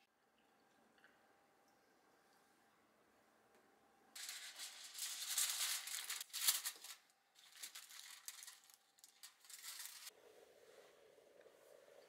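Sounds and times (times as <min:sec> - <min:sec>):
rustling and crinkling handling noise: 0:04.2 - 0:10.1.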